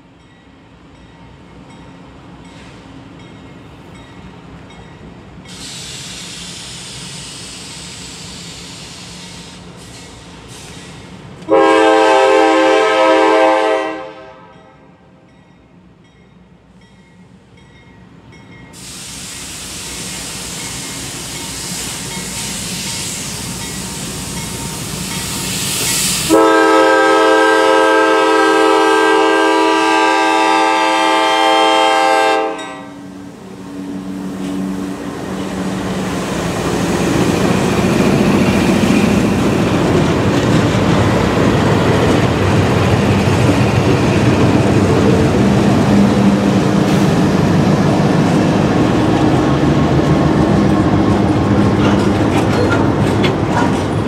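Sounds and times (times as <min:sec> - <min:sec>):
train running noise: 0:00.0 - 0:54.0
locomotive horn blasts: 0:11.5 - 0:14.8, 0:26.3 - 0:33.0.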